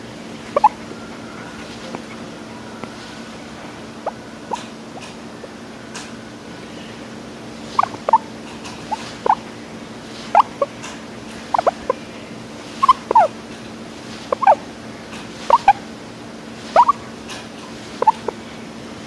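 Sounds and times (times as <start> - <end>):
guinea pig squeaky chirping: 0.5 - 0.8, 4.0 - 5.1, 7.7 - 9.4, 10.3 - 10.8, 11.5 - 12.0, 12.8 - 13.3, 14.3 - 14.6, 15.4 - 15.8, 16.7 - 17.0, 18.0 - 18.4.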